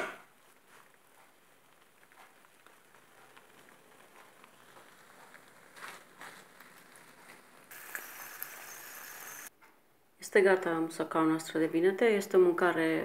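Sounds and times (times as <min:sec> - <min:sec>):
stew crackling in frying pan: 0:00.2 - 0:09.5
loud steady sizzle: 0:00.3 - 0:09.5.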